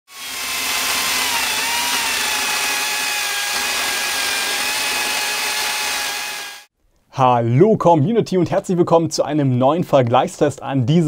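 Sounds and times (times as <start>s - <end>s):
cordless chainsaw running: 0.1s - 6.7s.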